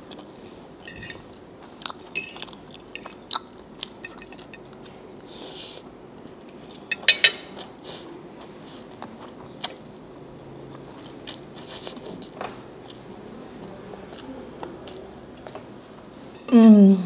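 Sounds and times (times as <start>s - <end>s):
wet chewing: 1.7s - 5.3s.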